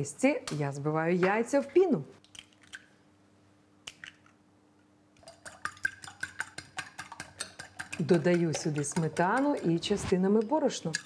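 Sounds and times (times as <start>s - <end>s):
fork beating eggs in glass bowl: 5.2s - 11.0s.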